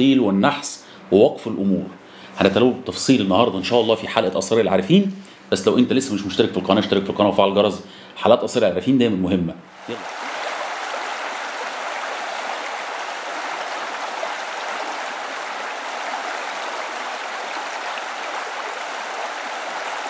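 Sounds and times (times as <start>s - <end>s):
stream water flowing: 9.7s - 20.0s.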